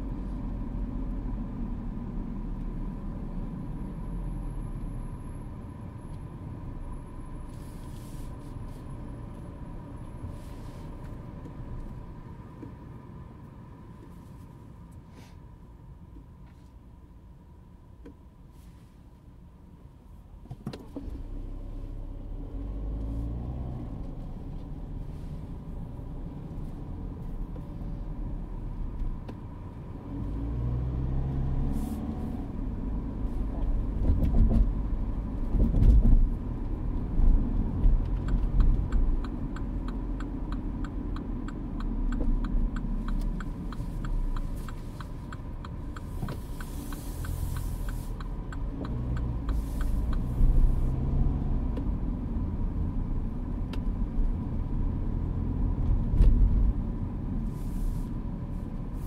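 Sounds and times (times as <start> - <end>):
car engine and road rumble: 0.0 - 59.0
brief hiss: 46.4 - 48.2.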